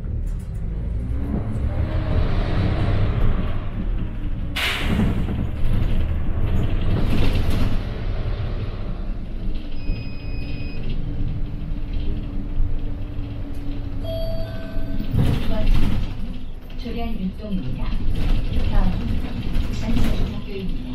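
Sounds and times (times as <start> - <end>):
bus engine rumbling: 0.0 - 20.9
air brakes hissing: 4.6 - 5.1
short electronic tone: 14.0 - 14.9.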